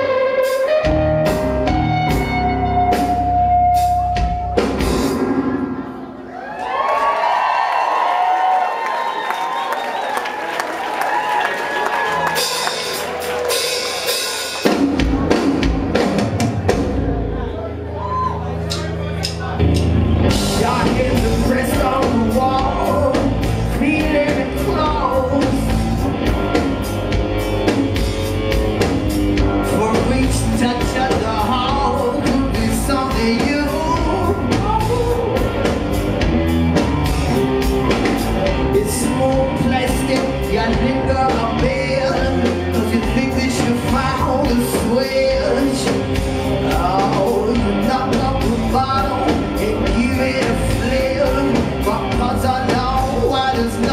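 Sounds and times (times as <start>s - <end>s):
electric guitars: 0.0s - 6.8s, 11.8s - 53.9s
bass guitar: 0.0s - 7.4s, 12.0s - 53.9s
drum kit: 0.0s - 7.4s, 11.8s - 53.9s
male lead vocal: 20.3s - 26.8s, 29.6s - 35.8s, 38.4s - 53.9s.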